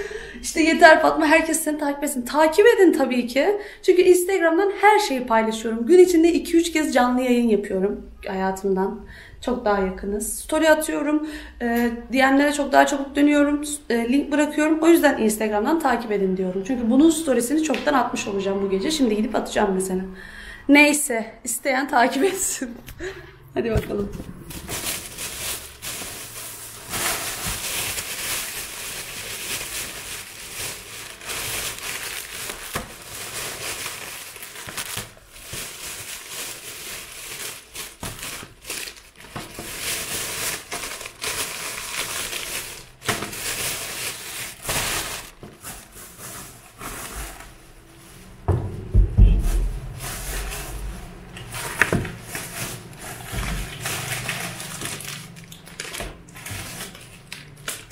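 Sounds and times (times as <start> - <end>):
plastic bags rustling: 24.0 - 57.9
dull thump: 48.5 - 50.0.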